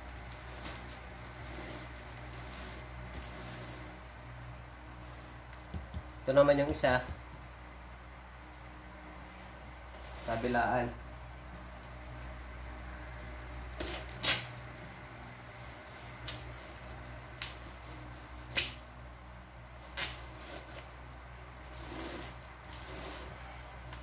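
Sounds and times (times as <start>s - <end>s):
tape and cardboard rustling: 0.0s - 4.0s, 13.2s - 18.9s, 19.7s - 21.0s, 21.6s - 24.0s.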